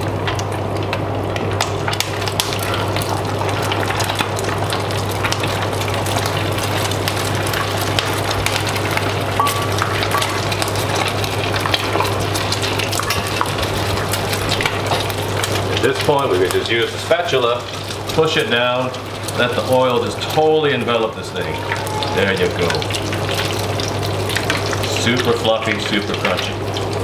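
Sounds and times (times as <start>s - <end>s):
extractor fan hum: 0.0s - 27.0s
oil sizzling and crackling: 0.0s - 27.0s.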